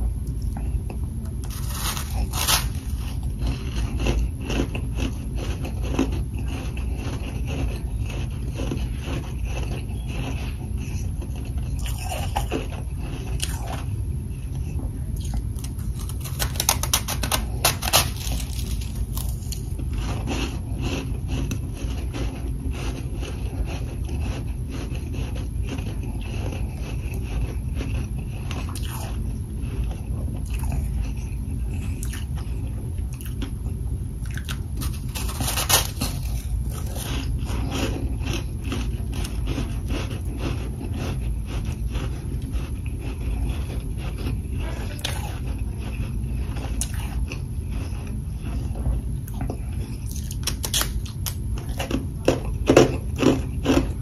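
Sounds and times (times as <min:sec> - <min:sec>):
frost being chewed: 0:00.0 - 0:54.0
steady low hum: 0:00.0 - 0:54.0.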